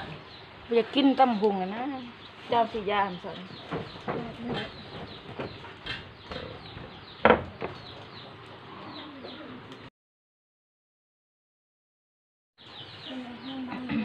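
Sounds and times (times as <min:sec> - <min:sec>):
small birds chirping: 0:00.0 - 0:09.9, 0:12.6 - 0:14.0
chickens clucking: 0:03.2 - 0:09.9.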